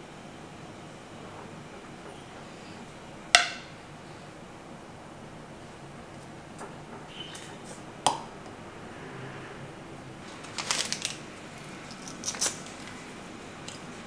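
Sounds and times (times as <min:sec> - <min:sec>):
tea bag wrapper crackling: 0:10.2 - 0:13.0.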